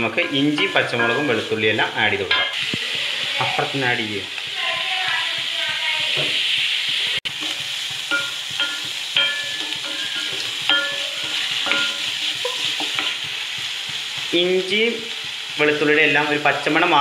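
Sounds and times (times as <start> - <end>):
onions sizzling in hot oil: 0.0 - 17.0
spatula knocking against metal pan: 7.4 - 13.7.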